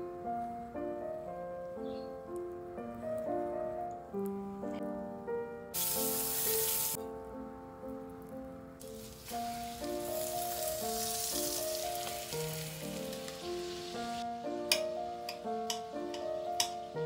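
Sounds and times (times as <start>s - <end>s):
background music: 0.0s - 17.0s
chicken sizzling in frying pan: 5.8s - 7.0s, 8.8s - 14.9s.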